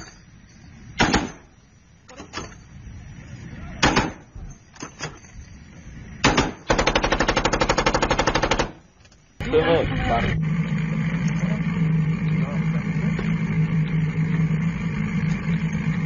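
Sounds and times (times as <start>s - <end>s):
gunshots: 1.0s - 1.5s, 3.8s - 4.3s, 6.2s - 8.8s
automatic gunfire burst: 3.8s - 4.2s, 6.2s - 8.8s.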